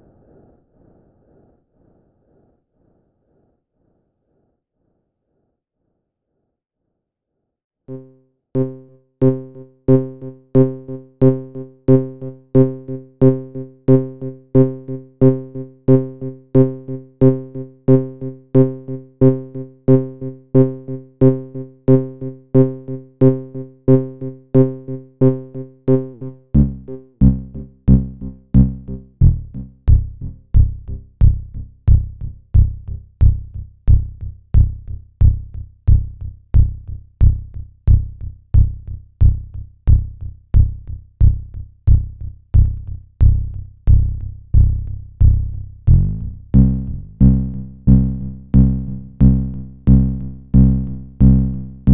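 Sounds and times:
pulsing low synthesizer note: 0:07.9 - 0:12.4, 0:25.4 - 0:51.9.

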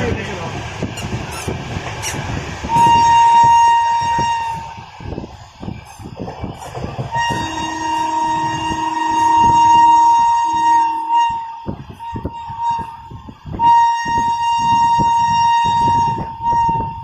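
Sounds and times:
train horn blasts: 0:02.7 - 0:04.9, 0:07.1 - 0:17.0
train wheels clattering over rail joints: 0:05.8 - 0:08.2.

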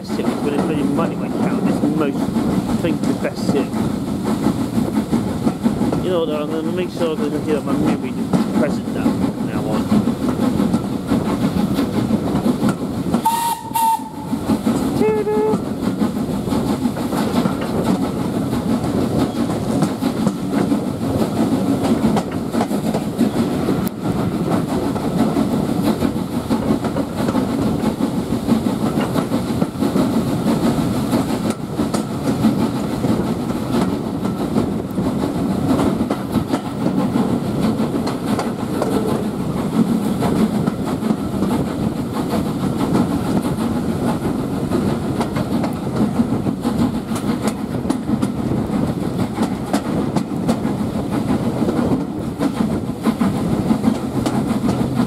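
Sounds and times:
train running noise: 0:00.0 - 0:55.0
steam locomotive whistle: 0:13.2 - 0:14.3.

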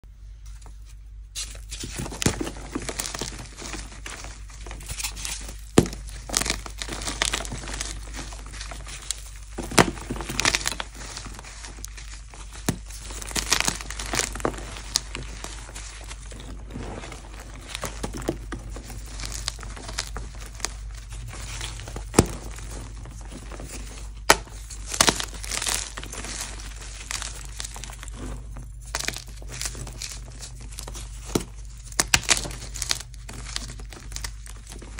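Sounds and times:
chalk crunching and crumbling: 0:00.4 - 0:34.9
chalk chunk snapping: 0:17.5 - 0:34.9.

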